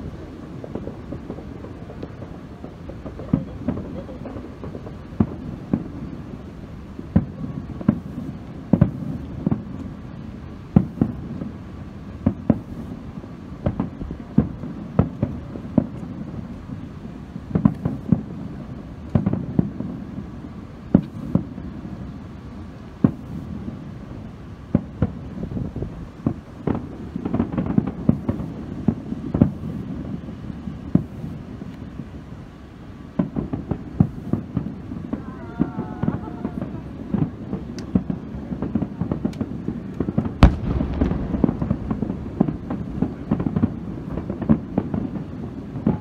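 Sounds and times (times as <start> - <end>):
fireworks bangs: 0.0 - 46.0
low rumble: 40.4 - 44.8.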